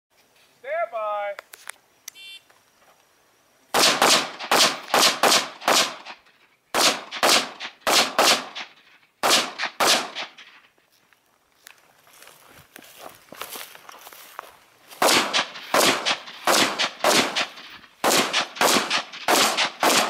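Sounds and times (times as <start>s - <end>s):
rifle shots echoing: 3.7s - 10.6s, 15.0s - 20.0s.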